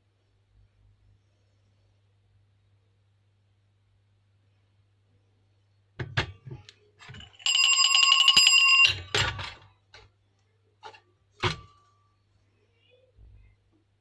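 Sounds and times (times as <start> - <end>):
knocks and clinks: 7.0 - 9.7
small metal hand bell ringing: 7.2 - 9.2.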